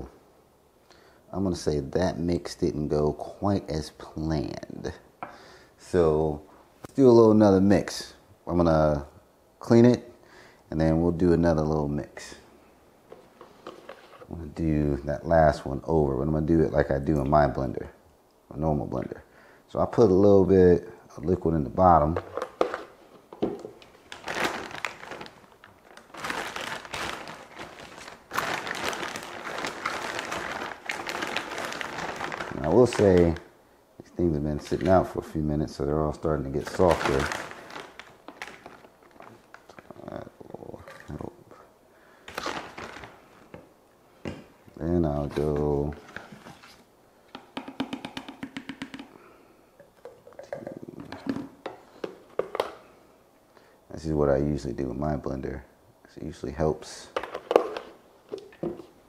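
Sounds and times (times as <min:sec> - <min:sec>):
plastic bag crinkling: 0:23.6 - 0:33.5, 0:36.5 - 0:40.1, 0:42.3 - 0:43.6.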